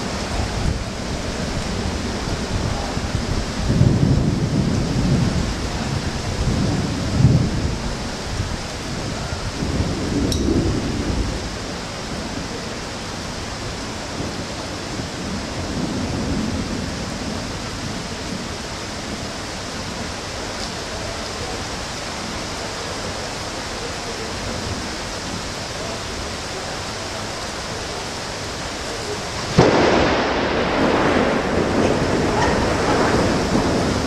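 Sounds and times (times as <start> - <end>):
loud thunderclap rumbling: 0.0 - 20.3, 29.3 - 34.0
steady rain hiss: 0.0 - 34.0.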